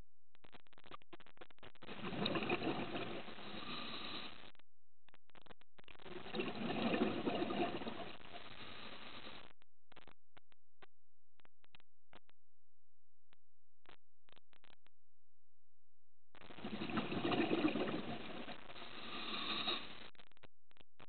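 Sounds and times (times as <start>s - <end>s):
exhaled breath bubbling underwater: 1.9s - 4.4s, 6.2s - 8.1s, 16.6s - 19.9s.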